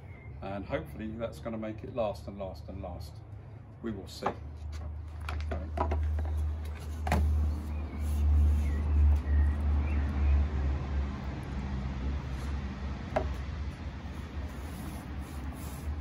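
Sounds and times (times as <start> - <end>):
paintbrush brushing on wood: 14.1 - 16.0.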